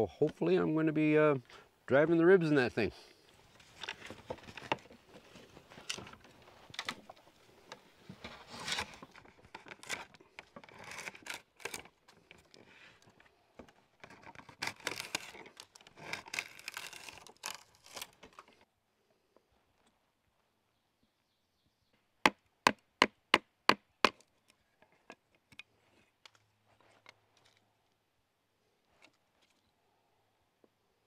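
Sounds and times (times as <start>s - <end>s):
drawknife scraping wood: 8.4s - 11.9s, 14.0s - 18.4s.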